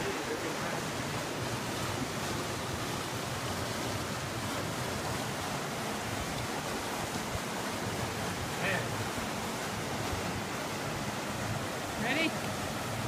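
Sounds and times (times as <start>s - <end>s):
brook water tumbling over rocks: 0.0s - 13.0s.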